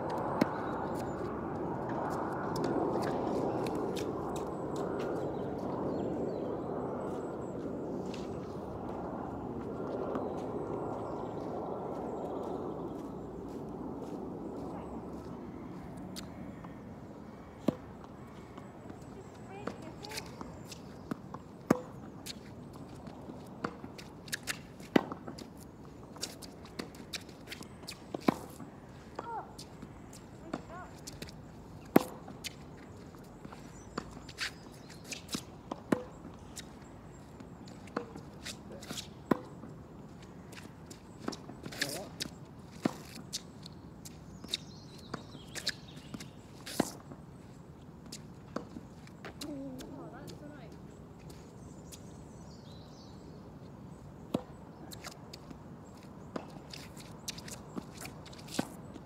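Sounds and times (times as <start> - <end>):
footsteps on court: 18.4 - 52.1, 54.3 - 59.0
tennis ball struck by racket: 31.8 - 32.6, 35.3 - 36.7, 37.9 - 39.6
ball bouncing on court: 31.9 - 32.3.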